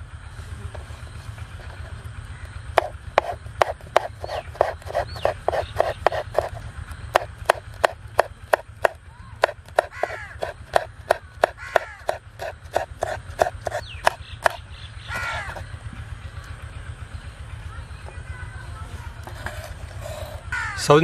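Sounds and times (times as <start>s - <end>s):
birds calling: 0.8s - 21.0s
knife chopping on cutting board: 2.8s - 6.6s, 7.2s - 14.6s.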